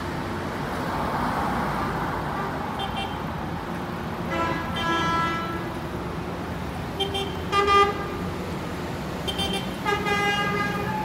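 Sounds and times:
coach horns honking: 0:04.2 - 0:05.8, 0:07.0 - 0:08.3, 0:09.2 - 0:11.0.

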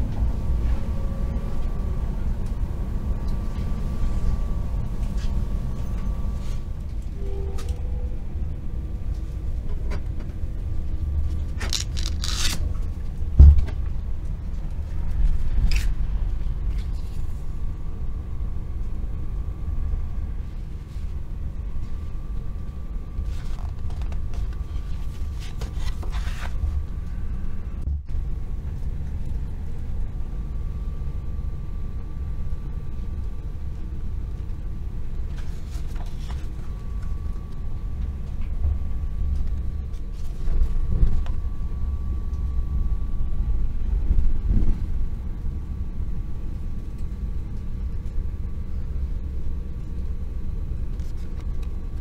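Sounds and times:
faint high whine: 0:00.0 - 0:52.0
train low rumble: 0:00.0 - 0:52.0
paper leaflets rustling: 0:11.6 - 0:12.6
short thump: 0:13.4 - 0:13.8.

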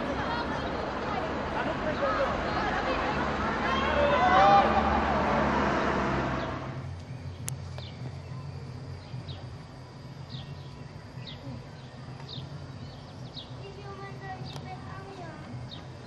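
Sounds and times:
low outdoor background hum: 0:00.0 - 0:16.0
bird chirping: 0:05.7 - 0:16.0.

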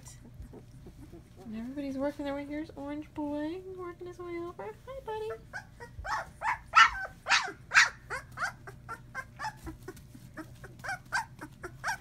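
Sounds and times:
puppies squealing and yipping: 0:05.3 - 0:12.0.

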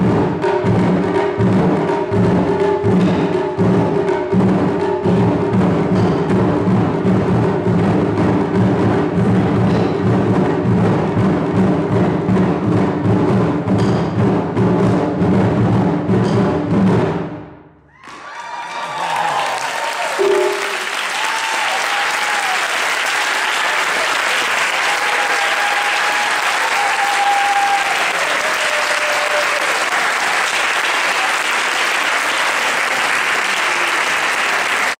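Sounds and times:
taiko drums beating: 0:00.0 - 0:18.3, 0:19.4 - 0:22.6, 0:24.6 - 0:29.8
audience applause: 0:17.9 - 0:34.9
people cheering: 0:17.9 - 0:34.9.

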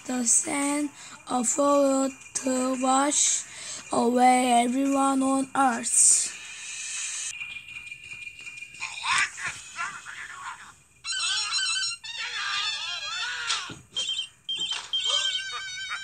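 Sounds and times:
light music: 0:00.0 - 0:11.0
squeaky gibberish cartoon voices: 0:08.8 - 0:16.0.

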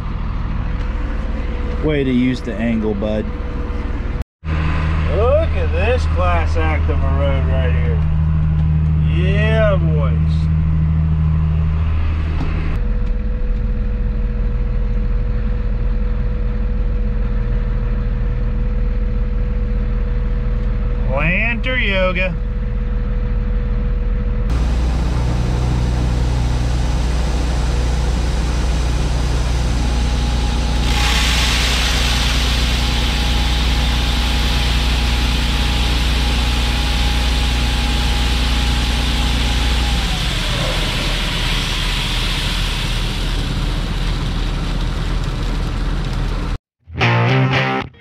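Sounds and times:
vehicle engine droning: 0:00.0 - 0:46.6
hiss: 0:29.2 - 0:36.5.

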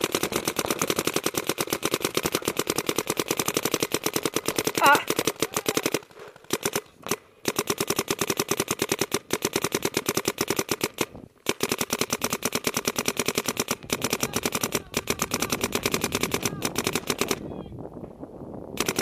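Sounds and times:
paintball marker firing rapid shots: 0:00.0 - 0:17.5, 0:18.8 - 0:19.0.

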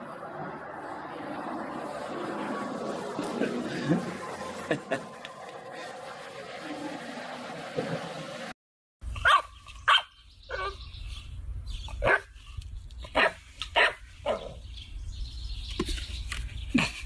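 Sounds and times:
puppy barking: 0:09.2 - 0:10.8, 0:12.0 - 0:12.3, 0:13.1 - 0:14.6.

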